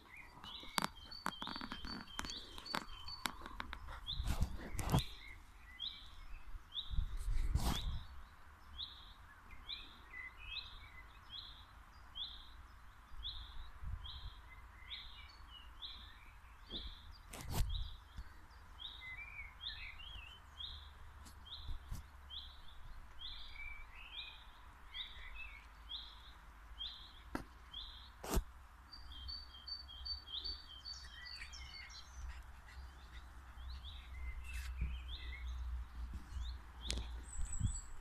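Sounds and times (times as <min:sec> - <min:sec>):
birds chirping: 0:00.0 - 0:38.0
wind rumble on microphone: 0:01.5 - 0:05.1, 0:06.2 - 0:08.3, 0:13.2 - 0:14.6, 0:16.8 - 0:18.2, 0:34.7 - 0:38.0.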